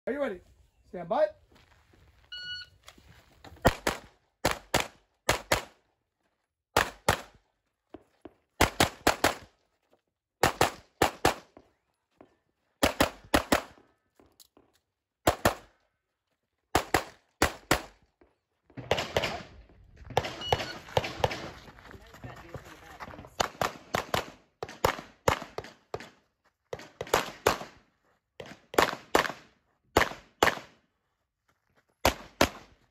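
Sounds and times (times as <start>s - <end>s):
shot timer beep: 2.3s - 2.7s
pistol shots: 10.4s - 11.5s, 12.8s - 13.8s, 28.4s - 30.8s.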